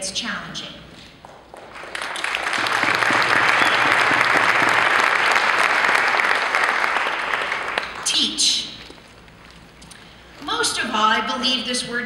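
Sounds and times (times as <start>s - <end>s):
audience applauding: 1.3s - 8.1s.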